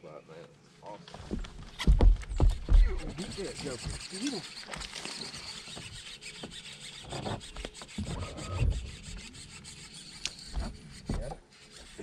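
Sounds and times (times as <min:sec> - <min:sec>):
irregular rubbing and scraping: 0:01.0 - 0:12.0
soft knocks: 0:01.2 - 0:04.1
dull thump: 0:01.3 - 0:04.1.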